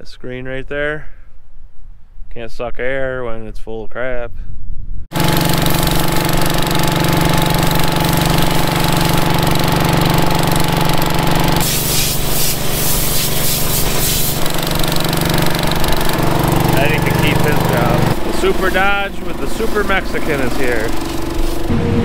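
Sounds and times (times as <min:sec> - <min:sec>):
combine engine running: 0:05.1 - 0:22.0
hissing rush: 0:11.6 - 0:14.9.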